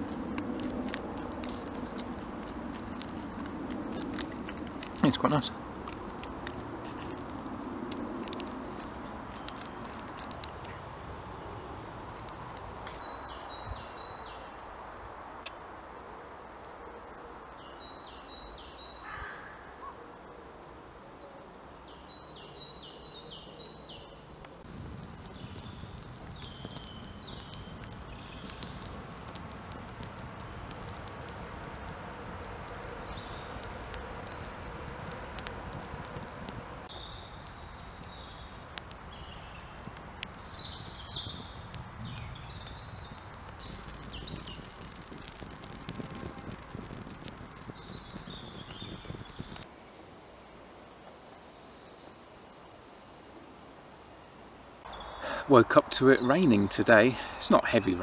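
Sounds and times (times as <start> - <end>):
birds chirping: 12.9 - 15.6, 16.8 - 53.4, 54.8 - 58.0
songbird singing: 12.9 - 15.7, 16.7 - 58.0.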